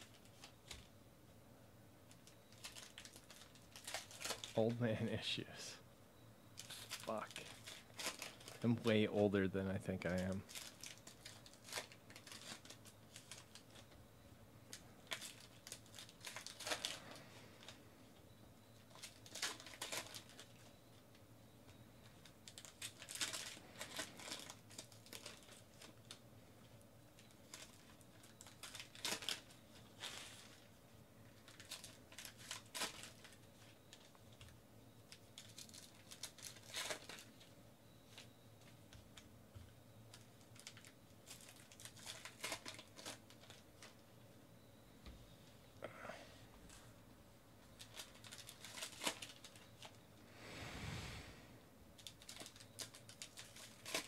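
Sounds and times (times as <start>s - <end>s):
wrappers crinkling and tearing: 2.1s - 4.7s, 6.6s - 9.0s, 10.1s - 13.9s, 14.7s - 17.8s, 18.8s - 20.7s, 22.1s - 26.2s, 27.2s - 30.7s, 31.3s - 34.5s, 35.1s - 37.5s, 40.1s - 44.0s, 47.8s - 50.0s, 52.0s - 54.0s.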